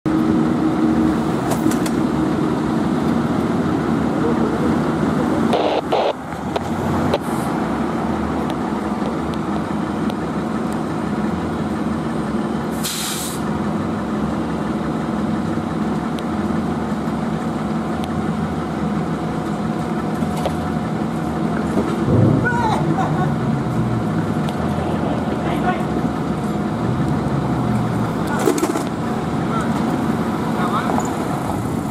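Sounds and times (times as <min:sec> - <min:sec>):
diesel engines idling: 0:00.1 - 0:31.9
air brake hiss: 0:12.7 - 0:13.4.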